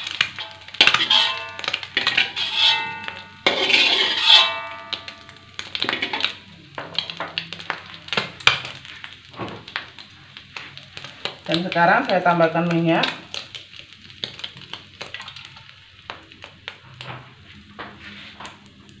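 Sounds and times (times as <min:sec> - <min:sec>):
metal spatula scraping a wok: 0:00.0 - 0:06.4
spatula knocking with ringing: 0:00.4 - 0:05.7.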